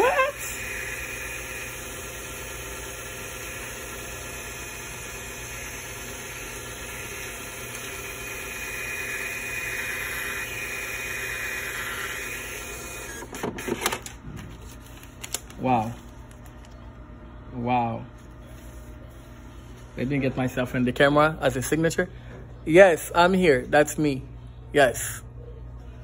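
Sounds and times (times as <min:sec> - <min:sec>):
receipt printer printing: 0:00.0 - 0:15.0.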